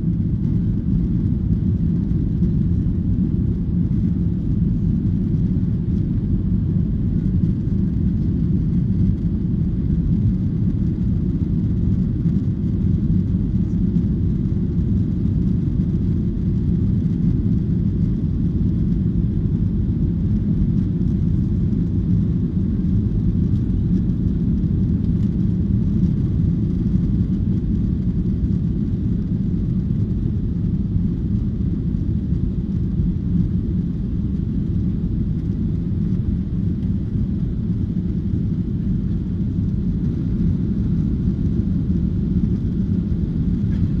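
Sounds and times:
airflow over fuselage: 0.0 - 44.0
jet engines droning in cabin: 0.0 - 44.0.

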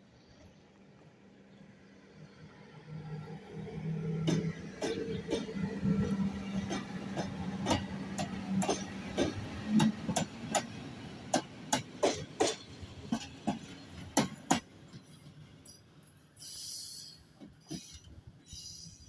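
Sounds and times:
electric locomotive hum: 0.0 - 19.0
train wheels clacking on rail joints: 4.2 - 15.8, 17.3 - 18.3.

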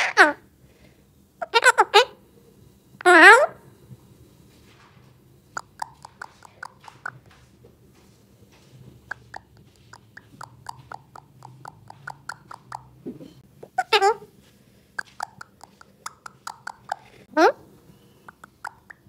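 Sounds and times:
parakeet call: 9.1 - 12.9, 15.0 - 19.0.

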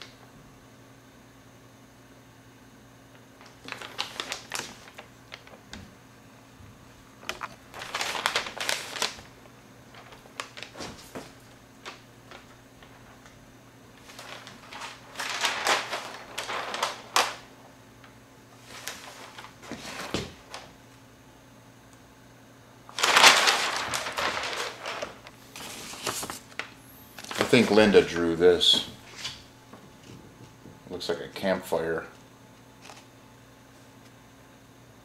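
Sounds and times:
paper rustling and crinkling: 3.4 - 5.9, 7.2 - 13.4, 14.0 - 20.7, 22.9 - 30.3, 32.8 - 33.1.

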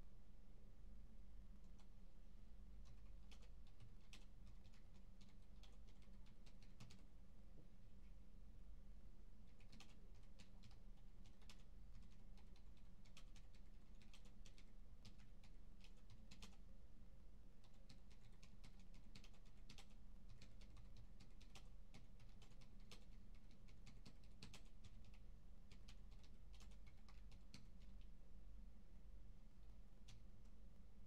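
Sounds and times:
low office hum: 0.0 - 31.0
keyboard typing: 2.8 - 7.1, 9.4 - 16.6, 17.6 - 28.1.

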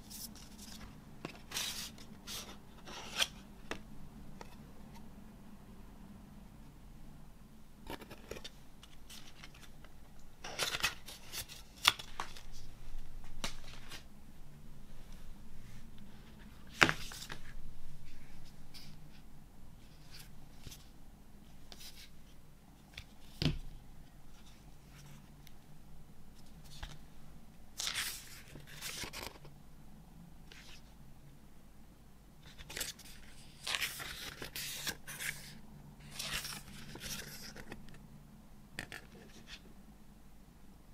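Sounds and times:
card and paper rustling: 7.9 - 14.1, 16.2 - 18.9, 27.8 - 29.5, 32.4 - 37.8.

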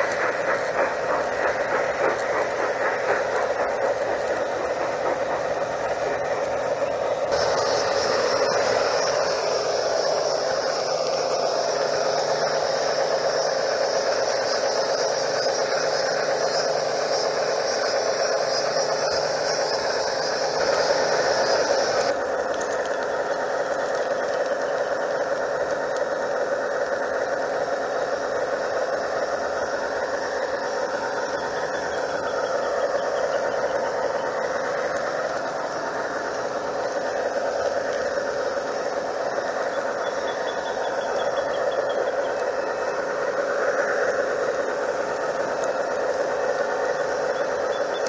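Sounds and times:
high hiss: 0.0 - 22.1
model train wheels rattling: 0.0 - 48.0.

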